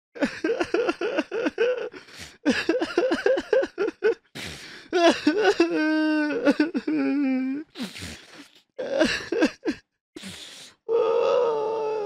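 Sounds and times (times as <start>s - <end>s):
person sobbing: 0.2s - 7.7s, 8.8s - 9.8s
gasping breath: 1.9s - 2.5s, 4.3s - 5.0s, 7.6s - 8.8s, 10.2s - 11.4s
person wailing: 10.9s - 12.0s.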